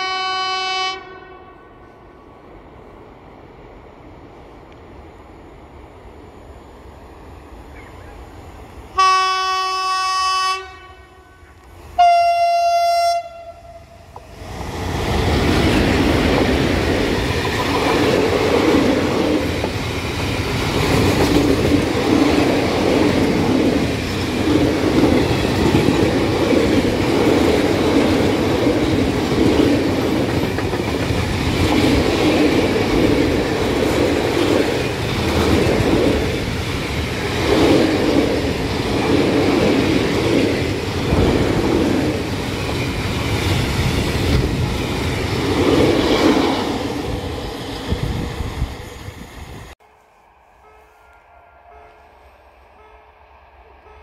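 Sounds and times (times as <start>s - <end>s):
train horn: 0.0s - 2.1s, 9.0s - 14.2s, 50.5s - 53.2s, 53.8s - 54.0s
freight train passing: 0.0s - 54.0s
train wheel clatter: 14.9s - 46.7s.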